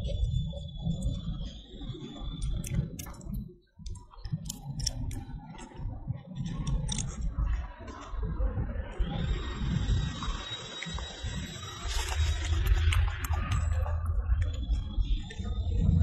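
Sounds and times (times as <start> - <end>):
low rumble: 11.2 - 16.0.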